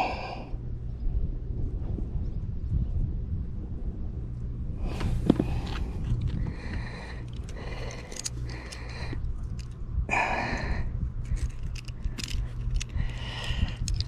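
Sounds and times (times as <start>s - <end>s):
person breathing heavily: 0.0s - 0.6s, 4.8s - 14.0s
low steady rumble: 0.0s - 14.0s.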